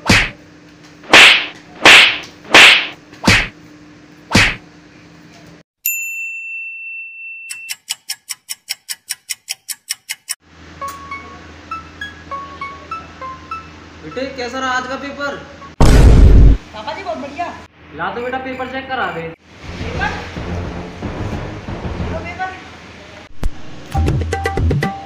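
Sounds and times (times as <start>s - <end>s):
loud slaps: 0.0s - 0.4s, 1.0s - 3.6s, 4.3s - 4.6s
rapid sharp ticks: 7.7s - 10.4s.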